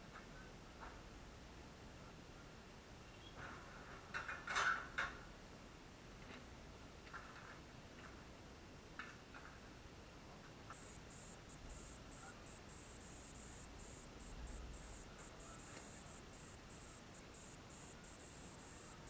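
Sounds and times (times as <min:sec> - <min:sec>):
high-pitched chirping: 0:10.8 - 0:19.0.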